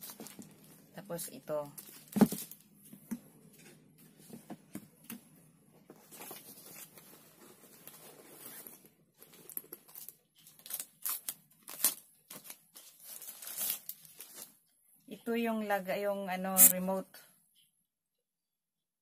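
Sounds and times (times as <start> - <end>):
packaging rustling and crinkling: 0.0 - 1.0, 1.6 - 2.8, 5.9 - 14.7.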